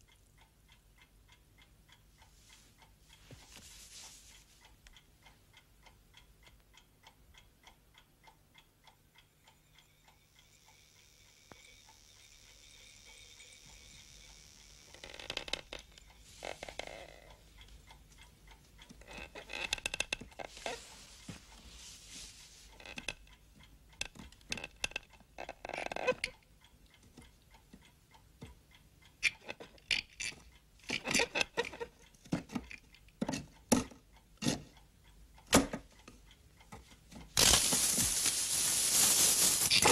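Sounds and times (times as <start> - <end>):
clock ticking: 0.0 - 21.6, 22.6 - 37.4.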